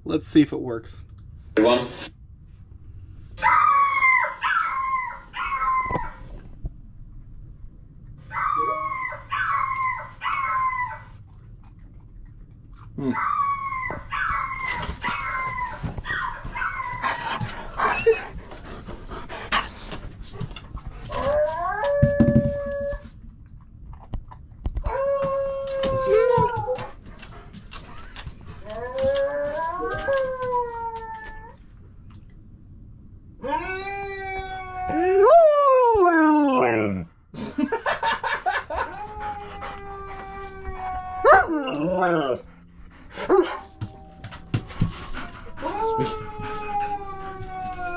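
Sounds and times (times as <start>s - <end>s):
puppy whining and howling: 3.4s - 6.4s, 8.3s - 11.3s, 12.9s - 18.8s, 20.9s - 23.2s, 24.8s - 27.4s, 28.0s - 31.6s, 33.4s - 37.1s, 38.5s - 47.9s.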